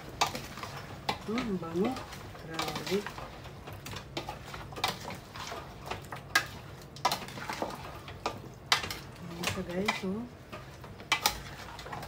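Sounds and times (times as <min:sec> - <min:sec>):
metal spoon scraping a pot: 0:06.3 - 0:12.0.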